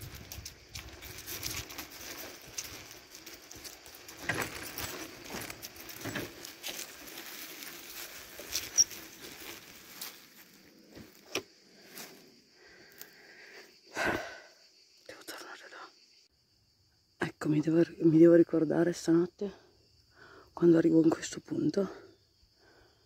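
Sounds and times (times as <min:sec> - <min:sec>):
rustling and crackling: 0:00.0 - 0:12.2.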